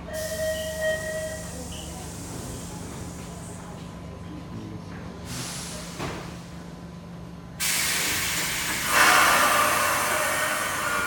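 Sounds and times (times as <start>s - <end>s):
subway train pulling out: 0.0s - 4.5s, 5.1s - 11.0s
loud hiss of released air: 7.6s - 11.0s.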